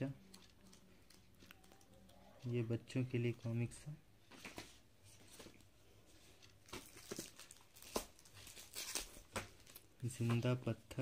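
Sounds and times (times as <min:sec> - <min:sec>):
comic book pages rustling: 0:04.2 - 0:10.6.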